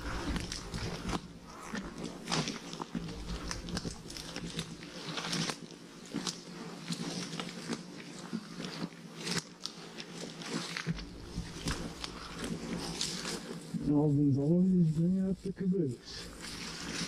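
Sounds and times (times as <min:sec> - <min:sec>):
crunching steps on rocky trail: 0:00.0 - 0:14.0.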